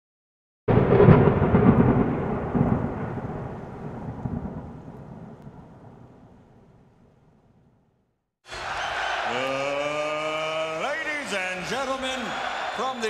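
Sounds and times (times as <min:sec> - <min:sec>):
thunder-like crash rumbling: 0:00.7 - 0:06.4.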